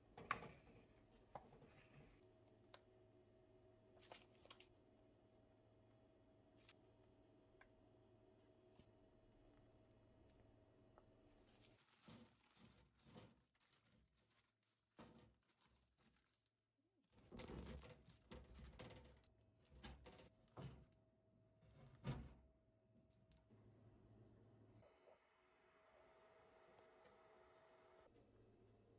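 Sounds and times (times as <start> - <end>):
rustling and crinkling: 11.2 - 21.0.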